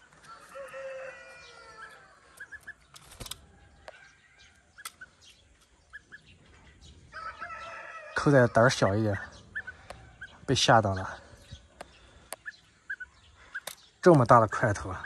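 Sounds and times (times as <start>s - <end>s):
poultry drawn-out call: 0.0s - 2.8s, 7.1s - 10.5s
poultry chirping: 0.0s - 15.0s
sharp clicks: 4.8s - 5.7s, 13.5s - 14.3s.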